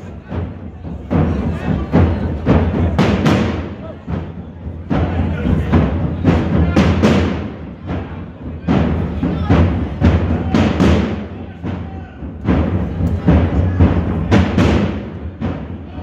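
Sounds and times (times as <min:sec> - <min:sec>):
procession drums beating: 0:00.0 - 0:16.0.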